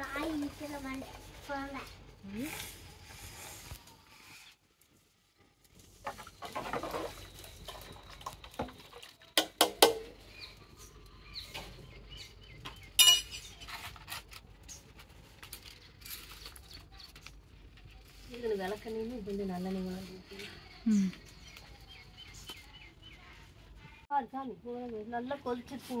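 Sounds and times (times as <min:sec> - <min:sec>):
ladle clinking on steel pots: 0:13.0 - 0:13.6.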